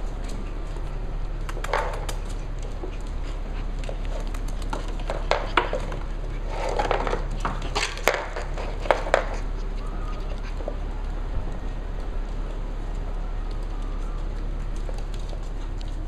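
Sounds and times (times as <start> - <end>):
claws clattering on wooden floor: 3.8 - 9.5
toys rolling and knocking: 4.7 - 9.5.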